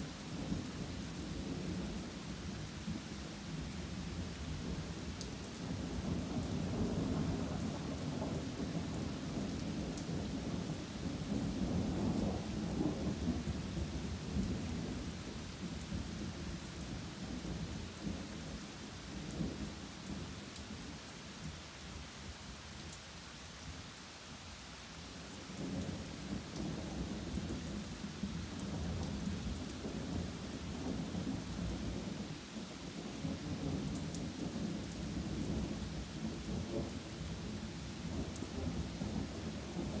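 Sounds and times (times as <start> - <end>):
steady rain: 0.0 - 40.0.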